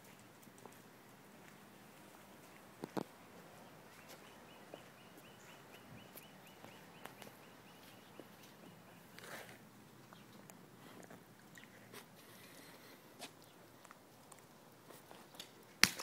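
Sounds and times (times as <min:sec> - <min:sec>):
faint high chirp: 0:03.9 - 0:09.2.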